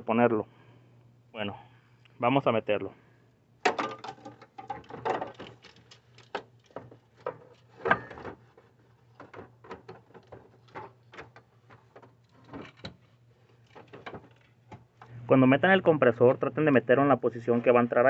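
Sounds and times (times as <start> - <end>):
low steady hum: 0.0 - 18.0
metal knocks and clunks: 3.6 - 13.0.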